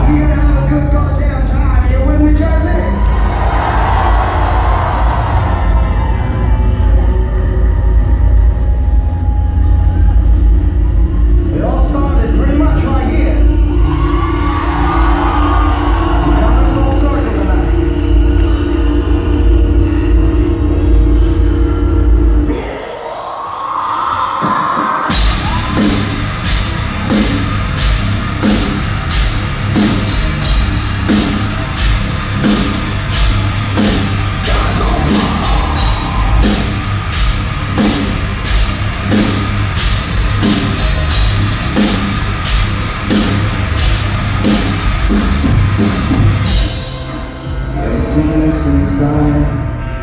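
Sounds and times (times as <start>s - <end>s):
distorted guitars: 0.0s - 50.0s
heavy rock band playing: 0.0s - 50.0s
drum kit steady beat: 22.5s - 47.5s.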